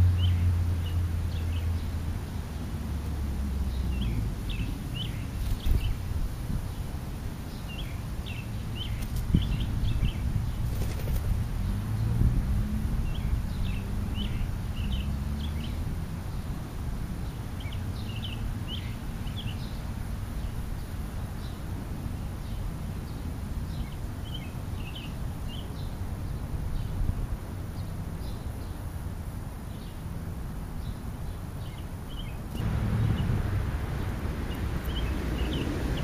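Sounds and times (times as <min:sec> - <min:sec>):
birds chirping: 0:00.0 - 0:03.0, 0:03.6 - 0:12.1, 0:29.7 - 0:36.0
low outdoor rumble: 0:00.0 - 0:07.6, 0:30.2 - 0:36.0.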